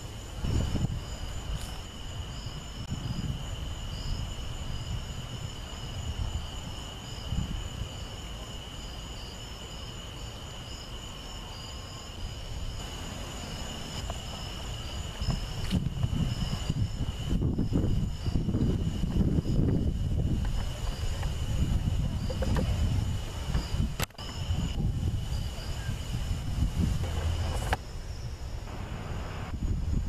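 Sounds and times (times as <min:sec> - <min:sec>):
night insects chirping: 0:00.0 - 0:30.0
low uneven rumble: 0:12.8 - 0:30.0.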